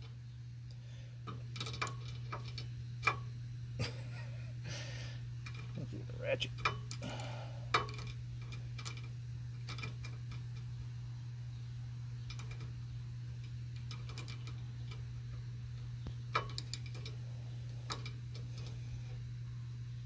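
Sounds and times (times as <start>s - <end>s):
ratcheting wrench clicking: 1.2s - 3.3s, 13.4s - 15.1s, 16.3s - 17.2s.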